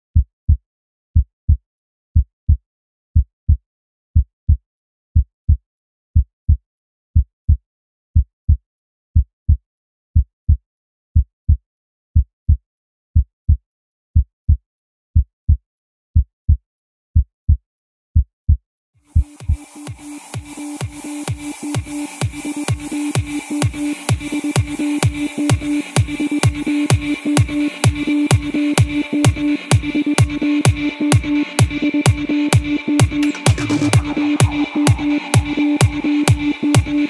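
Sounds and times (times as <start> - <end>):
heartbeat thuds: 19.1 - 37.0.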